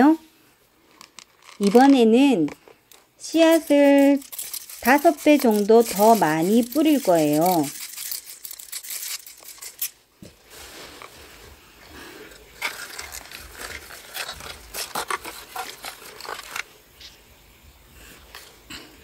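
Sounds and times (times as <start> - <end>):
seed packet crinkling: 0.9 - 11.5, 12.3 - 16.8
spray bottle spraying: 3.7 - 9.9.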